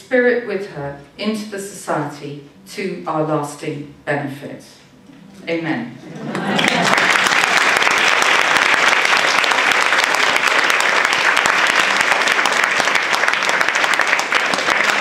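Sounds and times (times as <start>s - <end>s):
audience applauding: 6.3s - 15.0s.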